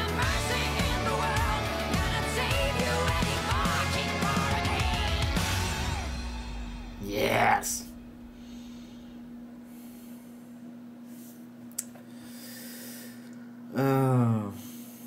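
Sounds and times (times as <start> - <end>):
low electrical hum: 5.7 - 15.0
man breathing through nose: 8.3 - 13.5, 14.6 - 15.0
man humming sigh: 13.2 - 15.0.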